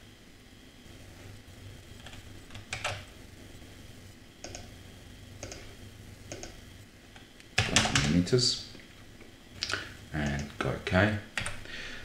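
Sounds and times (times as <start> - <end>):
mouse and keyboard clicks: 4.4 - 4.7, 5.4 - 5.7, 6.3 - 6.6.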